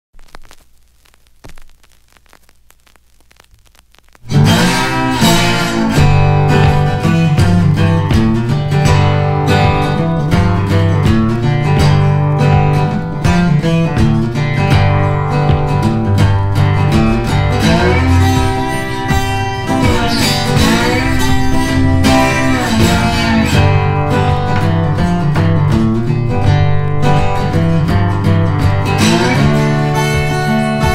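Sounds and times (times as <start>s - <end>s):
faint crackly noise: 0.0s - 5.7s
strummed acoustic guitar music: 4.2s - 30.9s.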